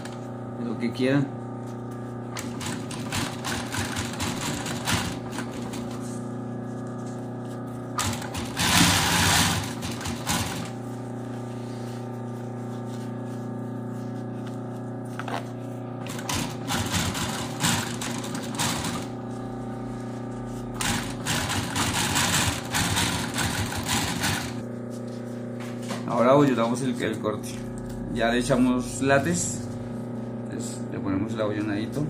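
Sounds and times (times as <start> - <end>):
industrial sewing machine stitching: 2.3 - 6.0, 8.0 - 10.8, 16.0 - 19.2, 20.8 - 24.6.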